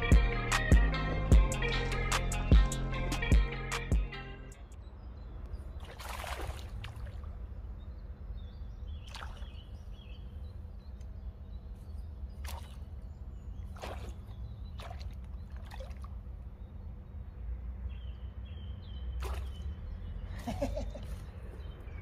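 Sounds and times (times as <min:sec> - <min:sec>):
steady low rumble: 0:00.0 - 0:05.8
water splashing and dripping: 0:05.8 - 0:07.5, 0:09.1 - 0:09.6, 0:12.4 - 0:13.0, 0:13.7 - 0:16.2, 0:19.2 - 0:19.6.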